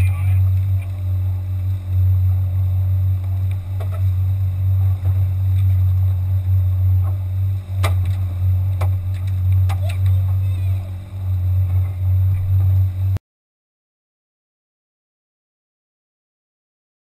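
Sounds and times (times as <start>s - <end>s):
outboard motor running: 0.0s - 13.2s.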